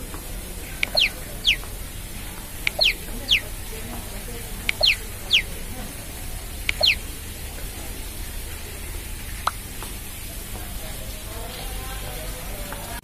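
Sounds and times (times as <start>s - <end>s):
low background noise: 0.0s - 13.0s
bird-like chirping call: 0.8s - 1.7s, 2.6s - 3.6s, 4.7s - 5.5s, 6.6s - 7.1s.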